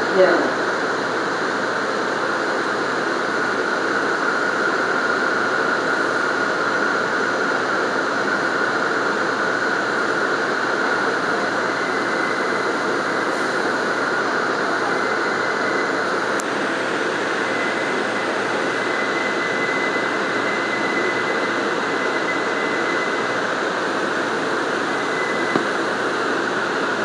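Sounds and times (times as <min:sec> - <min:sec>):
subway car on elevated tracks: 0:00.0 - 0:27.0
faint high whine: 0:10.8 - 0:27.0.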